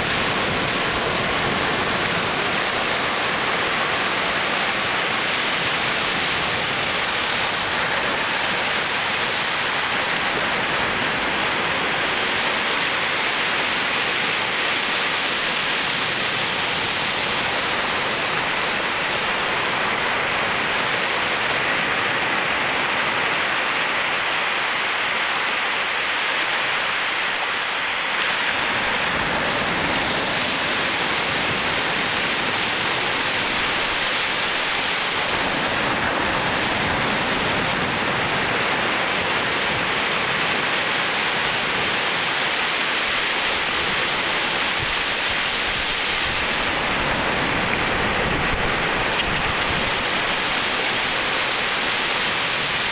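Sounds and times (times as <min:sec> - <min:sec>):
ocean waves breaking on beach: 0:00.0 - 0:52.9.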